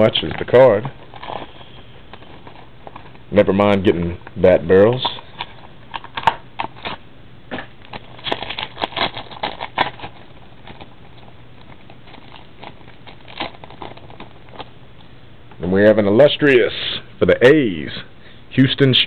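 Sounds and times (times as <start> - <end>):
foil wrapper crinkling: 0.0 - 7.0, 7.8 - 14.8.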